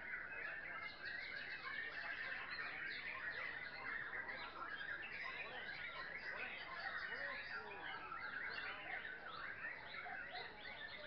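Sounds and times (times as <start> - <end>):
birds whistling and chirping: 0.0 - 11.0.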